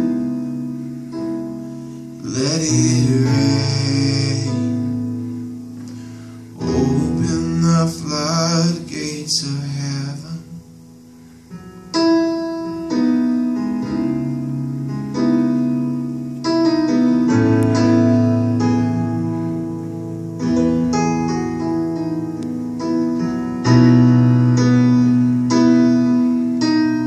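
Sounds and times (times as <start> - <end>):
man singing: 2.2 - 5.0, 6.6 - 10.7
digital keyboard chords: 10.8 - 27.0.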